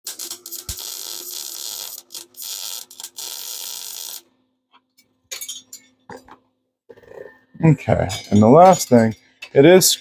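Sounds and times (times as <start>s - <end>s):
welder arc crackling: 0.1s - 4.3s.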